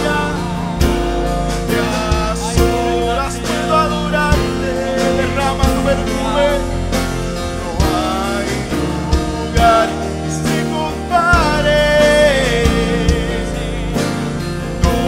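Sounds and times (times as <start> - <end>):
drum hits: 0.0 - 15.0
people singing into microphones: 0.0 - 15.0
sustained instrumental backing: 0.0 - 15.0.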